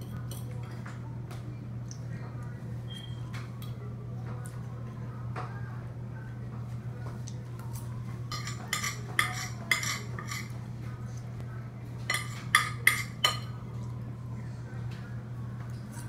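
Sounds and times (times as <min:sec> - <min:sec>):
fork scraping on a plate: 0:08.3 - 0:10.6.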